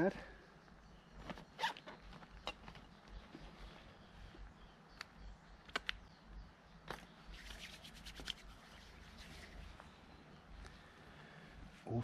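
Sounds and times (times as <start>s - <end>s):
crackly rustle: 0.9s - 6.0s, 6.9s - 11.4s.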